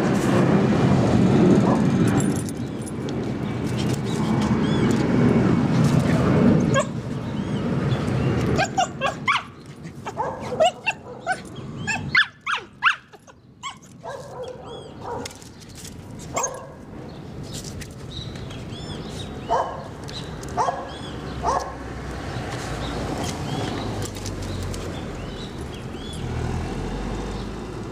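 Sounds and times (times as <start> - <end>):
dogs yipping and whining: 6.7 - 7.0, 8.4 - 15.3, 16.3 - 16.8
sharp dog barks: 10.1 - 11.4, 19.5 - 19.9.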